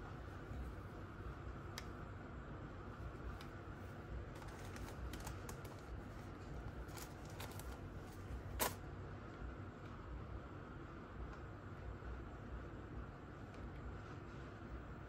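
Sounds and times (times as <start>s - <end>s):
low steady hum: 0.0s - 15.0s
hands handling sunglasses and pouch: 4.3s - 8.8s.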